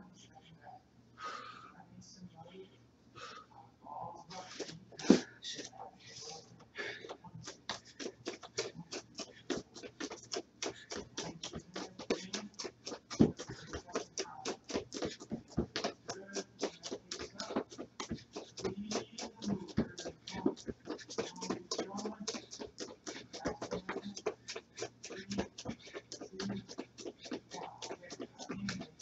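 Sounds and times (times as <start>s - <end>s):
footfalls running in place: 6.8s - 29.0s.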